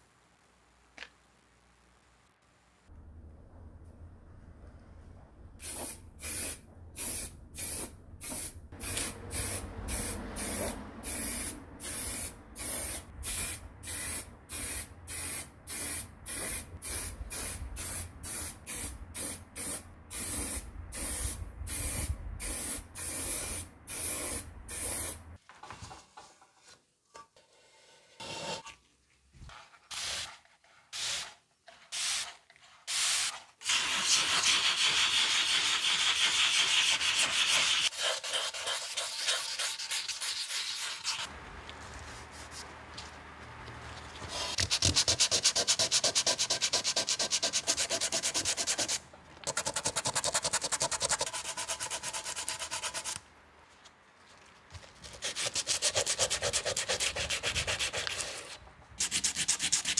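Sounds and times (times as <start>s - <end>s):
spray hissing in short bursts: 5.6s - 25.2s.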